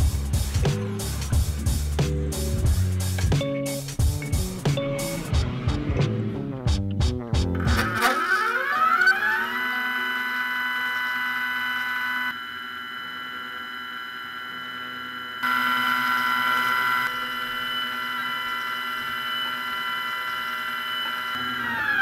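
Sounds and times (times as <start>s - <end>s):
stepper motor whine: 7.5s - 22.0s.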